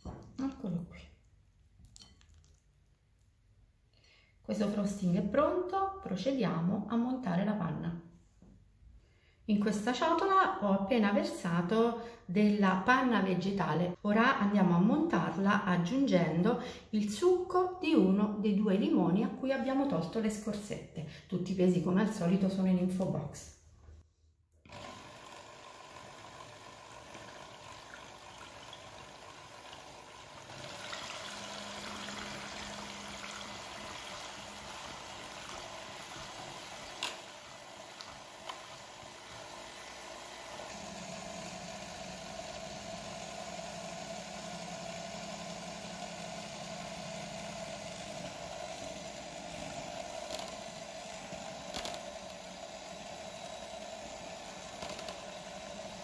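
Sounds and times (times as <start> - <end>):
electric hand mixer whirring: 24.6 - 56.0.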